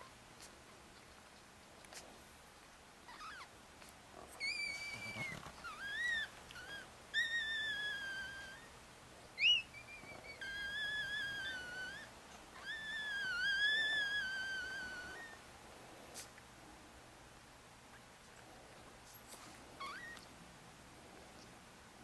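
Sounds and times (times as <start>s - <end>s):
dog whining: 3.1s - 3.5s, 4.2s - 8.7s, 9.4s - 15.4s, 19.8s - 20.3s
dog yelping: 3.1s - 3.5s, 4.4s - 8.7s, 9.4s - 15.4s.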